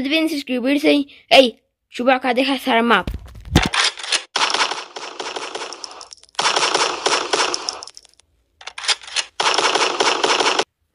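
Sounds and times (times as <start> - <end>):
automatic gunfire: 3.8 - 7.9, 8.9 - 10.7.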